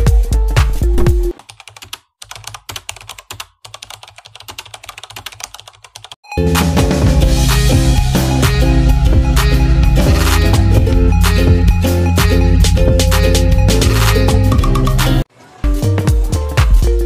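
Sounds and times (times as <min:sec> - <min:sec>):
music with steady beat: 0:00.0 - 0:01.4, 0:06.4 - 0:17.0
background music: 0:06.3 - 0:17.0.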